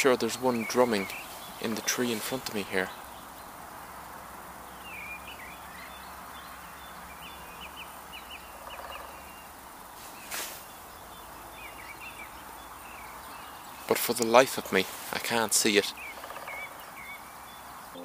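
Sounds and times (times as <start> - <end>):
distant woodpecker drumming: 0.0 - 18.0
small birds chirping: 0.0 - 18.0
sharp rustle: 9.9 - 10.8, 13.9 - 15.4.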